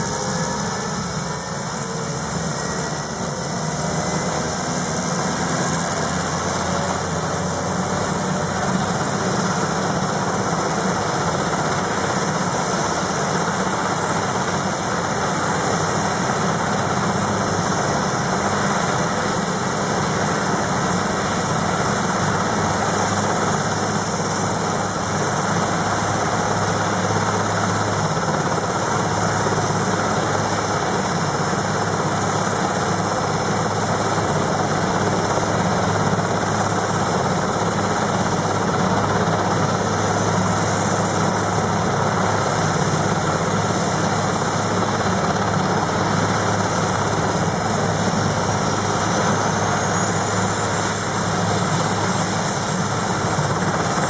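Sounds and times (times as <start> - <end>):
helicopter running: 0.0 - 54.0
high turbine whine: 0.0 - 54.0.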